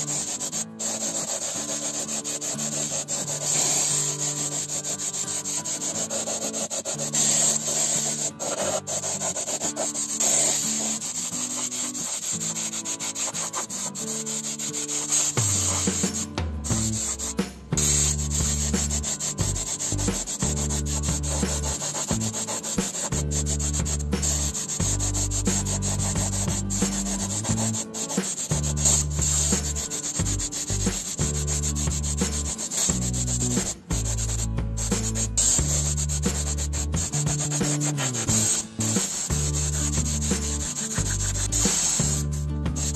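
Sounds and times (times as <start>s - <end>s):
scratchy rubbing noise: 0.0s - 42.9s
background music with deep bass: 14.1s - 42.9s.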